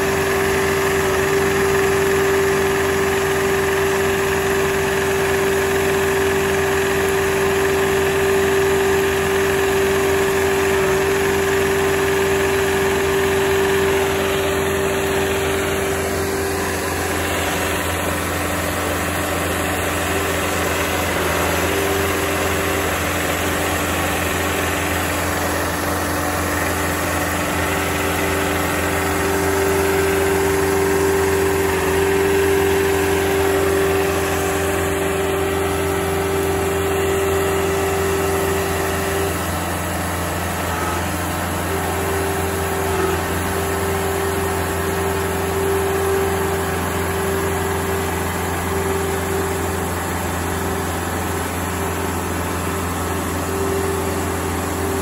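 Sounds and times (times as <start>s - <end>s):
engine running steadily: 0.0s - 55.0s
steady whine: 11.8s - 42.0s.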